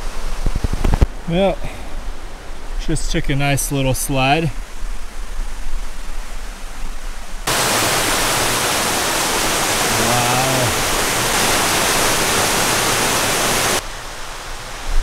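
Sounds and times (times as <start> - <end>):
quiet hiss: 0.0 - 8.2
brook cascades rushing: 7.4 - 15.0.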